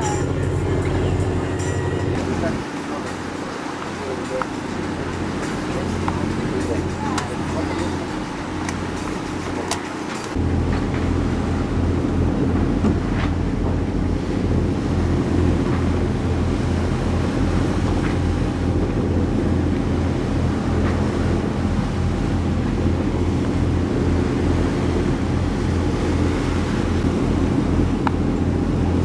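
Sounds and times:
sea wash: 0:00.0 - 0:29.0
wind buffeting microphone: 0:00.0 - 0:29.0.

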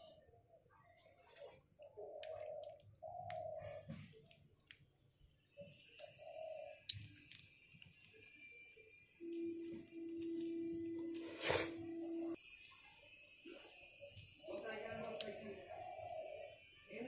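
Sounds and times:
snail shells clicking: 0:05.6 - 0:06.2, 0:06.8 - 0:08.2, 0:14.1 - 0:15.5.

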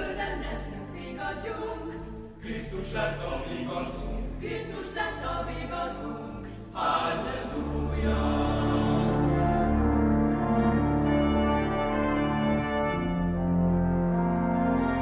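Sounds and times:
choir singing: 0:00.0 - 0:15.0
organ sustained low notes: 0:05.2 - 0:15.0.

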